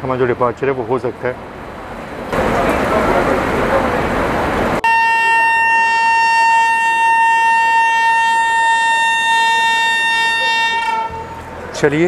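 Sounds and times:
train horn long note: 0:04.8 - 0:11.7.

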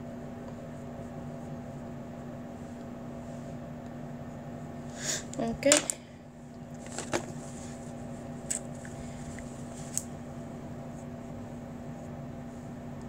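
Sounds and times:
low room hum: 0:00.0 - 0:13.0
paper tissue rustling: 0:06.8 - 0:10.0.

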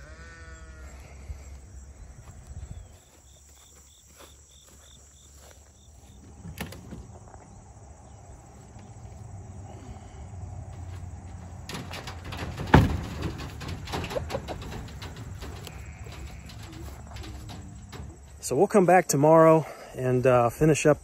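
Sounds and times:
high insect chirps: 0:00.2 - 0:19.5
handling noise: 0:10.6 - 0:18.9.

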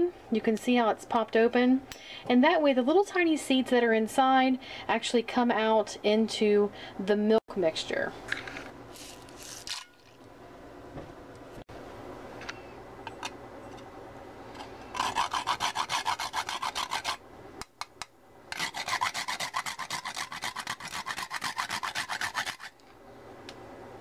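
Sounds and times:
nutmeg rasping on metal grater: 0:14.9 - 0:17.2, 0:18.6 - 0:22.8.

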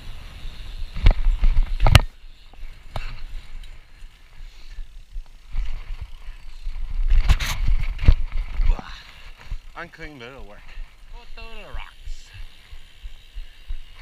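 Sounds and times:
bike tyres rumbling on pavement: 0:00.0 - 0:14.0
wind on camera: 0:05.5 - 0:08.8.

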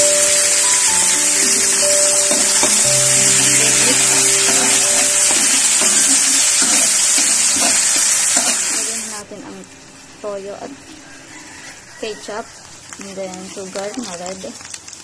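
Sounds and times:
sauce sizzling in hot oil: 0:02.9 - 0:09.3.

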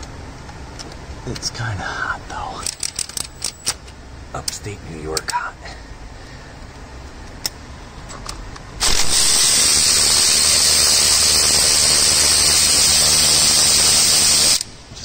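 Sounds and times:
power ratchet whirring: 0:08.8 - 0:14.8.

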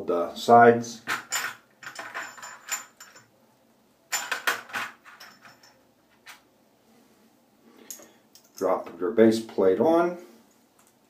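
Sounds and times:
small metal parts clinking: 0:01.1 - 0:03.3, 0:04.1 - 0:06.4.

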